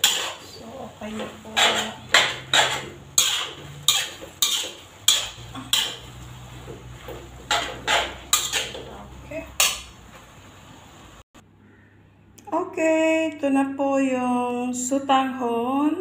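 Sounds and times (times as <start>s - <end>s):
metal spatula scraping a wok: 0.0s - 10.1s.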